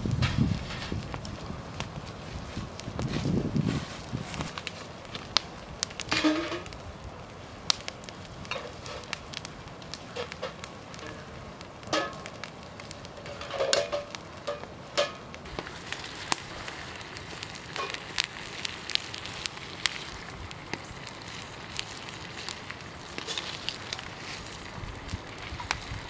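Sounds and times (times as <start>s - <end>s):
campfire crackling and popping: 0.0s - 26.0s
metal pot set on grill rack: 11.9s - 12.3s, 13.2s - 15.2s, 17.7s - 18.2s.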